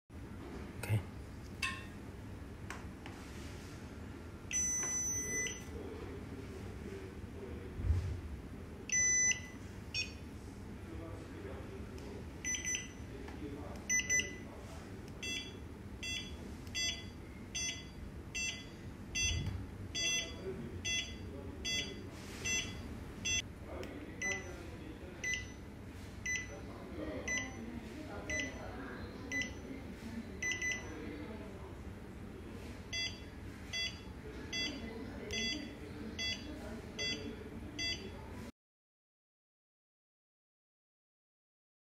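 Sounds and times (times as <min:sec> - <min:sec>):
short electronic beeps: 0:04.5 - 0:05.7, 0:15.2 - 0:19.4, 0:20.0 - 0:23.4, 0:32.9 - 0:35.6, 0:37.8 - 0:38.1.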